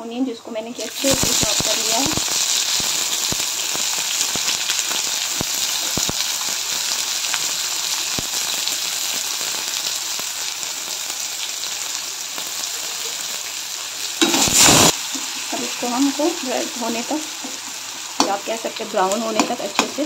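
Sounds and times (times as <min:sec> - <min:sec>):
onion sizzling in hot oil: 0:00.5 - 0:20.0
crackling pops: 0:01.0 - 0:10.3, 0:14.2 - 0:15.2.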